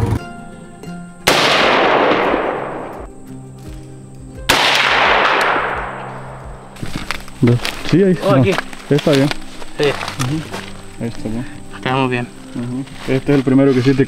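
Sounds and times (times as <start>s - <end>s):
rifle shots echoing: 1.2s - 3.1s, 4.5s - 6.8s.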